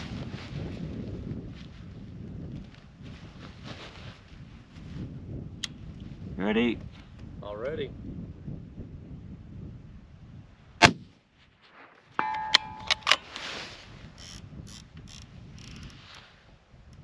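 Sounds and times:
rifle shot: 10.8 - 11.1
short ringing tone: 12.2 - 13.2.

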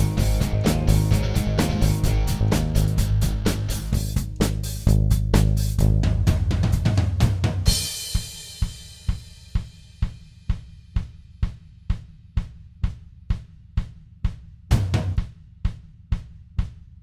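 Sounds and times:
background music: 0.0 - 4.8
steady drum beat: 0.0 - 17.0.

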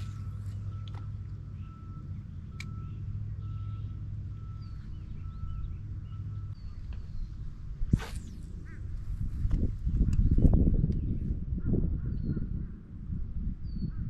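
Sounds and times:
faint bird chirps: 0.0 - 8.9
steady low rumble: 0.0 - 14.0.

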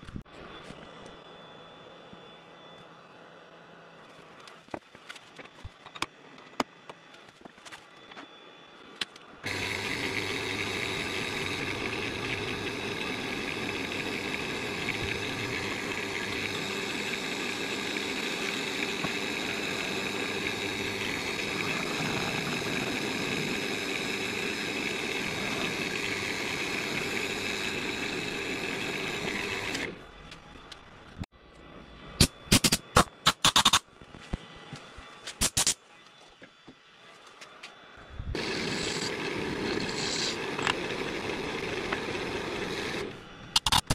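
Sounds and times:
drill boring into wax: 9.4 - 30.1, 38.3 - 43.9.

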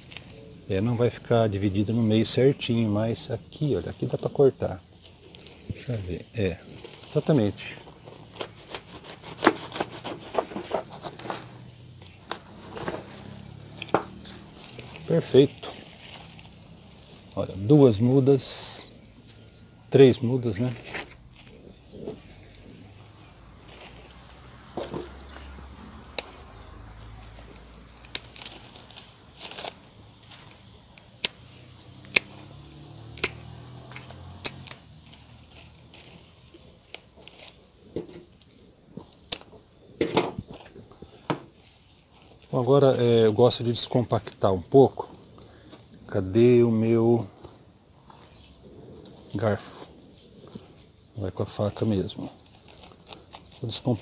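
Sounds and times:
soil and fronds rustling: 0.0 - 54.0
knife sawing through root ball: 8.2 - 11.6
pruning shears snipping roots: 27.9 - 37.6.

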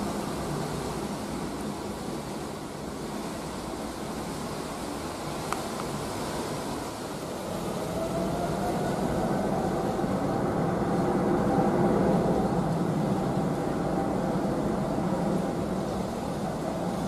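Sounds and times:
jet engine rumble: 0.0 - 17.0
faint rising jet whine: 6.6 - 17.0.

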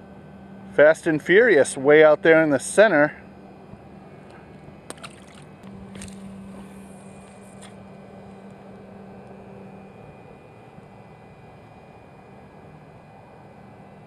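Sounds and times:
steady low hum: 0.0 - 14.0
fish splashing into water: 4.8 - 6.4.

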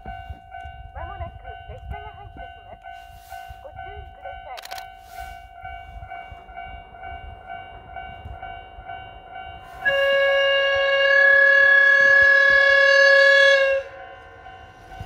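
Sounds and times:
level-crossing alarm dinging: 0.0 - 15.0
train horn blast: 9.6 - 14.4.

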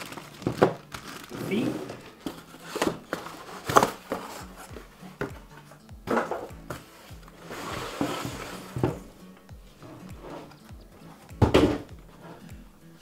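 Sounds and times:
cardboard packaging handled: 0.0 - 5.4
quiet background music: 0.0 - 13.0
plastic knocking on wooden bench: 11.3 - 12.0.

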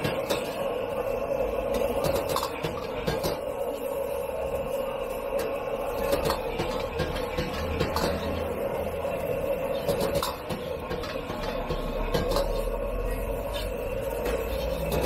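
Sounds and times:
gas burner roar: 0.0 - 15.0
metal ladle scraping wok: 5.8 - 15.0.

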